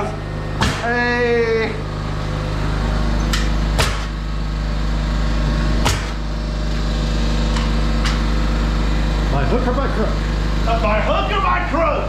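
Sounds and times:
air compressor humming: 0.0 - 12.0
nail gun firing into wood: 3.8 - 4.2, 5.8 - 6.2.

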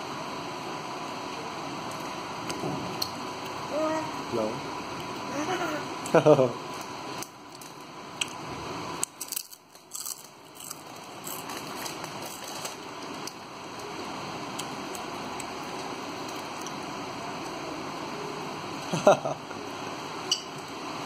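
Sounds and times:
plastic packet crinkling: 9.1 - 12.8.

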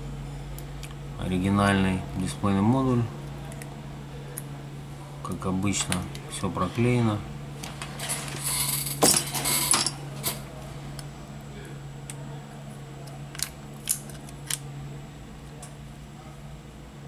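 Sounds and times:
small metal parts clinking: 8.0 - 10.4.

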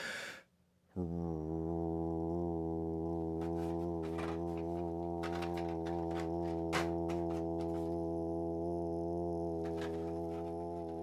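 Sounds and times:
man holding low rolled r: 1.0 - 11.0
toy cards clicking: 4.0 - 7.8.

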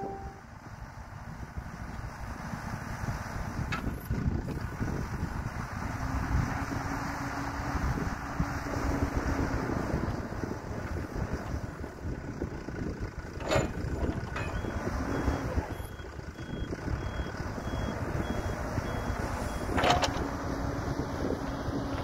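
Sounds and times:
reverse alarm beeping: 0.0 - 0.4, 14.4 - 19.7
excavator engine running: 0.0 - 22.0
wind noise on microphone: 2.4 - 15.8, 16.5 - 22.0.

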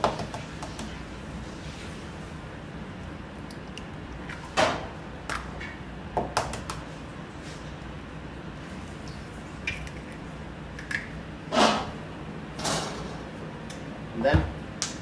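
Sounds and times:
eggs cracked against metal bowl: 9.6 - 10.2, 10.8 - 11.1.

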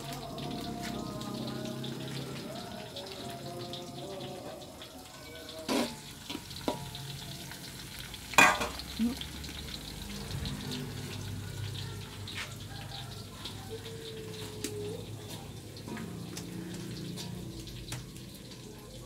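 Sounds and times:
greens sizzling in a wok: 0.0 - 19.0
sharp knocks on a wok: 8.4 - 8.8.

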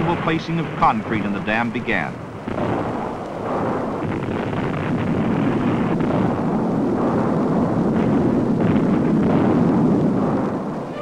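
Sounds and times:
low rumble of blast and falling rock: 2.2 - 10.9.

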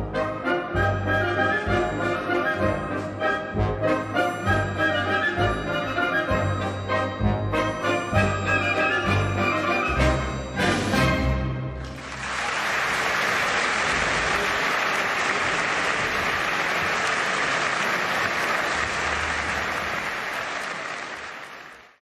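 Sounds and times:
crowd applauding: 11.8 - 22.0.

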